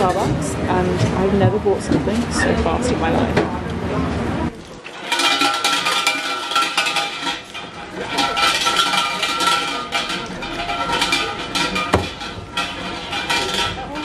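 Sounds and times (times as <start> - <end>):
shrine bell jangling: 4.9 - 14.0.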